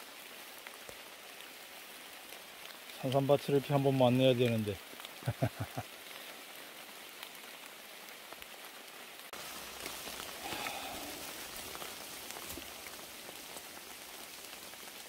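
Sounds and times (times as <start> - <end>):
rain on leaves: 0.0 - 15.0
water drips: 9.3 - 15.0.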